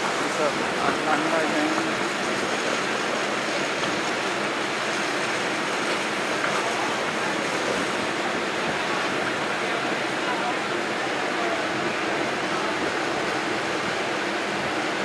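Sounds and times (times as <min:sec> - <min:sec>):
railway platform background noise: 0:00.0 - 0:15.0.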